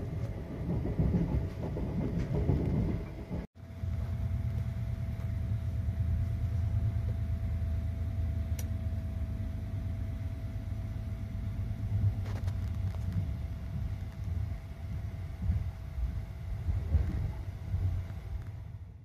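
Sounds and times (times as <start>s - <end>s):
train running rumble: 0.0s - 19.0s
light click: 8.6s - 8.8s.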